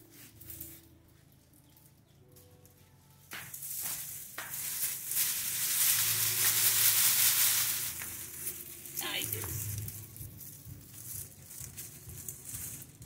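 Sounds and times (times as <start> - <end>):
dry stalks and pods rustling: 0.0 - 13.0
seeds pattering: 0.1 - 13.0
knocks of stalks: 3.3 - 10.2.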